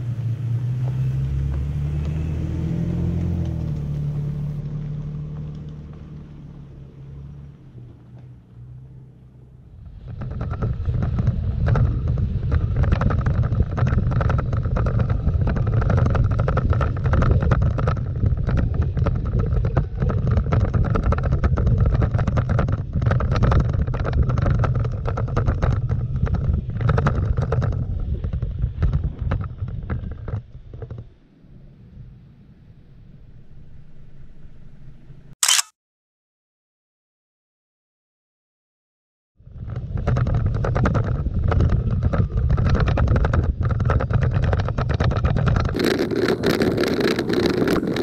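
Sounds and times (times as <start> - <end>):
pickup truck driving away: 0.0 - 13.2
truck rumbling on dirt road: 0.0 - 35.3, 39.4 - 48.0
wind on microphone: 9.7 - 32.8, 39.4 - 48.0.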